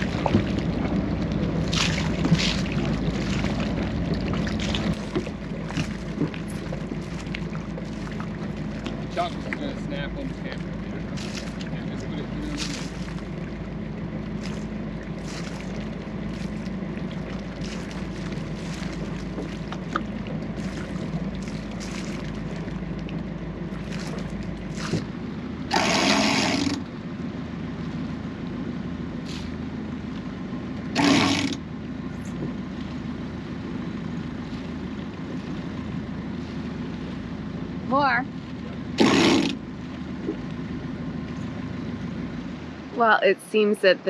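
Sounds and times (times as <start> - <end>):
boat engine at low revs: 0.0 - 44.0
loud short bursts of noise: 25.7 - 26.8.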